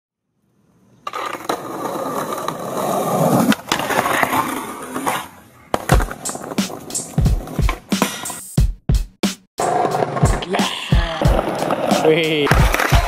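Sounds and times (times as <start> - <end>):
skateboard rolling on pavement: 0.5 - 8.1, 9.6 - 13.0
skateboard trucks grinding: 1.0 - 8.4, 9.6 - 13.0
skateboard pop: 5.0 - 8.4, 9.7 - 13.0
skateboard landing thuds: 5.7 - 8.4, 11.3 - 13.0.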